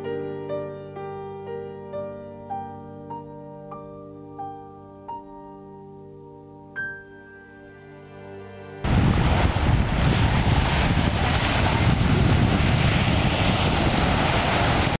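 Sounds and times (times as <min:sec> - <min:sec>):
background music held notes: 0:00.0 - 0:09.8
surf breaking on a beach: 0:08.8 - 0:15.0
wind buffeting microphone: 0:08.8 - 0:15.0.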